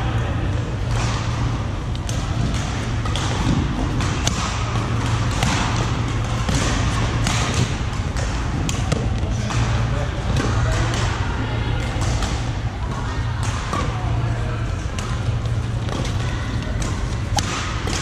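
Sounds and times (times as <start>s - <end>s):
steady low hum: 0.0s - 18.0s
racket striking shuttlecock: 2.0s - 11.1s, 14.9s - 18.0s.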